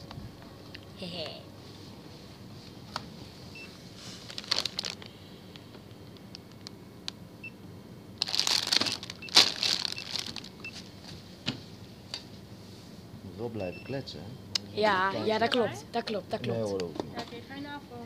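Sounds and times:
rustling: 8.2s - 10.6s
faint electronic till beeps: 13.6s - 14.1s.

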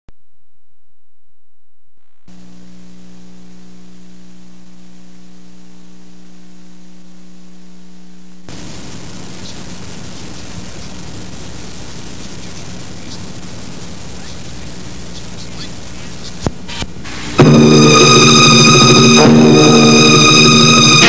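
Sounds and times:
mains hum: 0.1s - 21.0s
tape hiss: 0.1s - 21.0s.

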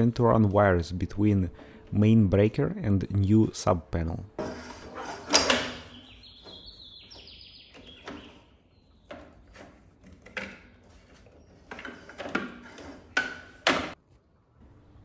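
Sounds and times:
knocks clicks and rubs: 4.4s - 14.0s.

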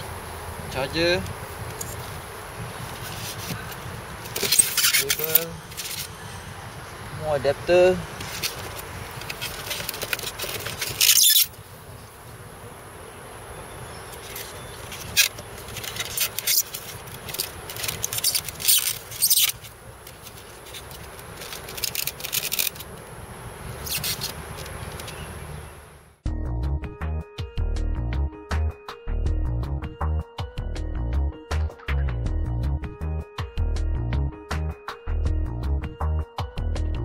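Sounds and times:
steady high-pitched hum: 0.0s - 26.2s
plastic scraping against foam: 2.8s - 6.2s, 8.1s - 11.6s, 14.2s - 23.0s, 23.8s - 25.2s
music: 26.2s - 37.0s.

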